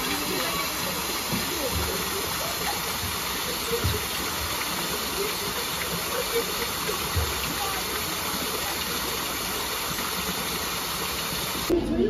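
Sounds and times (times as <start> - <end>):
waterfall splashing into pond: 0.0 - 11.8.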